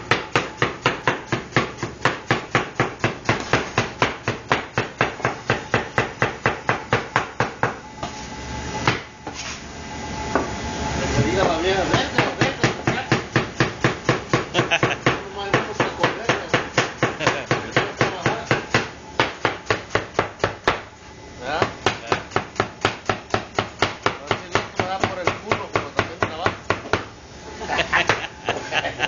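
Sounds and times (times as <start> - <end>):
knife chopping on cutting board: 0.1 - 7.8.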